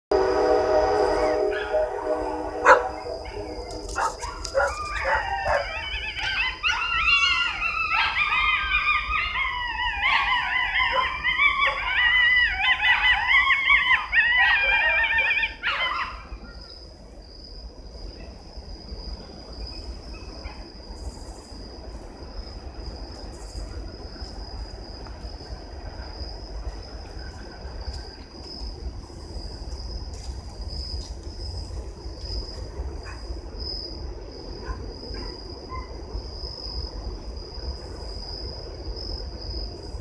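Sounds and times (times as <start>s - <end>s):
train horn: 0.1s - 4.4s
passing train rumbling: 0.1s - 9.6s, 16.2s - 40.0s
coyotes howling and yipping: 0.1s - 17.0s, 32.6s - 37.4s.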